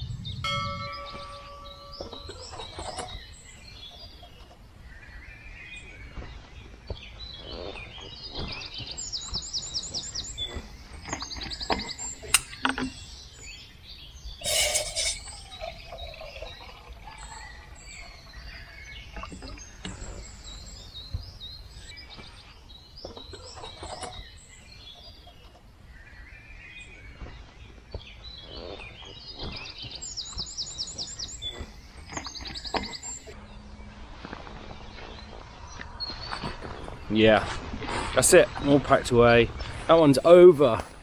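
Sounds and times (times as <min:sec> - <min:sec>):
small birds chirping and whistling: 0:00.0 - 0:33.6
rapid high bird notes: 0:14.4 - 0:16.0
footsteps on dry leaves: 0:33.6 - 0:38.1.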